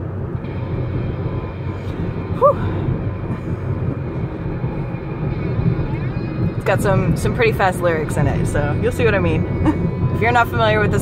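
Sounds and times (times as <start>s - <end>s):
road and engine rumble: 0.0s - 11.0s.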